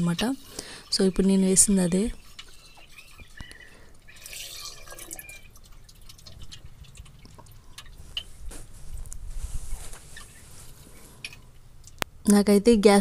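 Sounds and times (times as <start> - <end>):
water splashing on steel: 0.0 - 8.4.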